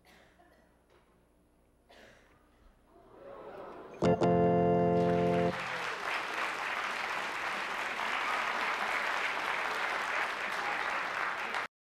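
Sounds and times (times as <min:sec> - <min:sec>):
held musical chord: 0:04.0 - 0:05.7
audience applauding: 0:04.8 - 0:11.7.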